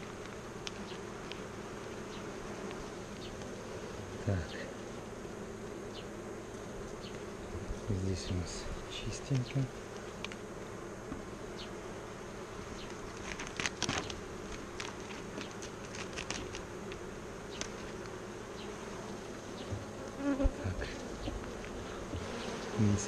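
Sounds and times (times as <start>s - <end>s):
honeybees buzzing: 0.0s - 23.0s
hive frames knocking: 21.2s - 22.6s.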